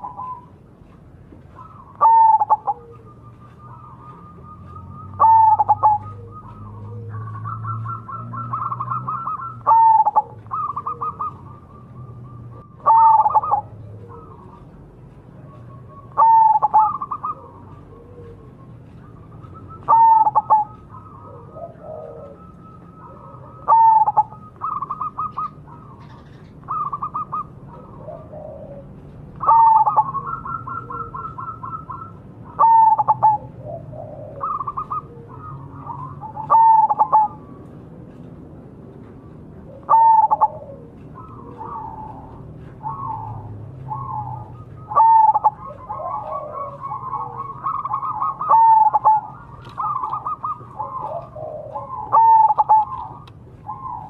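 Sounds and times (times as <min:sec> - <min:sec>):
dove cooing: 0:00.0 - 0:38.2, 0:39.0 - 0:54.0.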